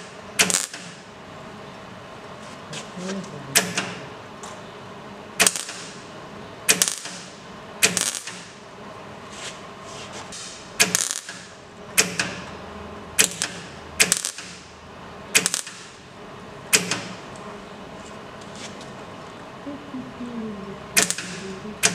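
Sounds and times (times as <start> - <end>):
welder crackling bursts: 0.0 - 1.0, 5.4 - 6.0, 6.7 - 8.6, 10.3 - 12.4, 13.2 - 14.7, 15.3 - 16.0, 20.9 - 21.9.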